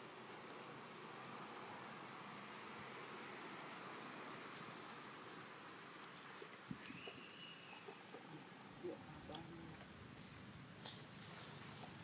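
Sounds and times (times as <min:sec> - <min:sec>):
high insect drone: 0:00.0 - 0:12.0
thin whistle-like call: 0:06.8 - 0:08.0.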